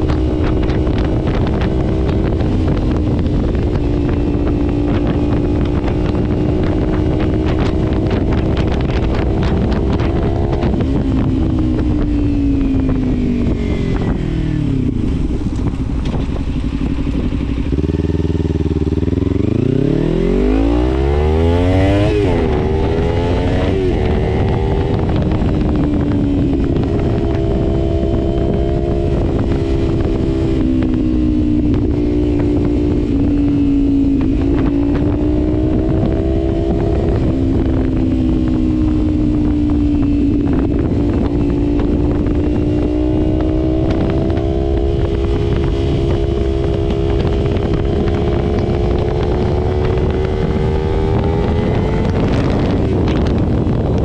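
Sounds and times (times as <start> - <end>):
motorcycle engine revving: 0.0 - 54.0
wind rumble on microphone: 0.0 - 54.0.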